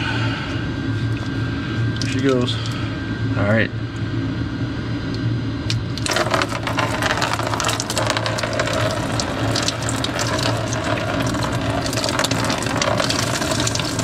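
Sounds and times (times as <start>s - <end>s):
steady low hum: 0.0s - 14.0s
liquid pouring and splashing: 6.0s - 14.0s.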